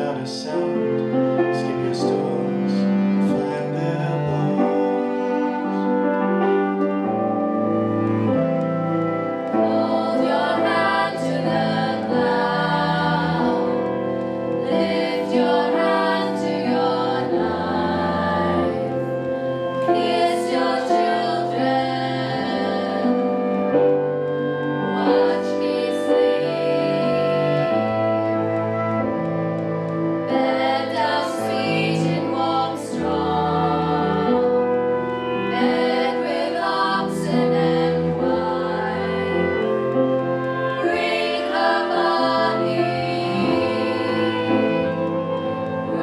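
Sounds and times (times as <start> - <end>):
folk ensemble playing: 0.0 - 46.0
group of voices singing: 9.5 - 23.8, 24.4 - 29.0, 30.2 - 46.0.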